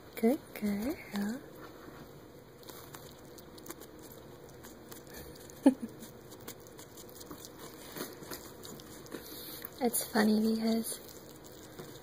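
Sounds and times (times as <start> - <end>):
hedgehog chewing clicks: 2.6 - 12.0.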